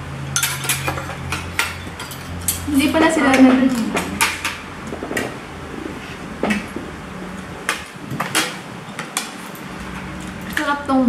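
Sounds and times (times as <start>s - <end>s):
cutlery clinking on ceramic plates: 0.4s - 2.7s.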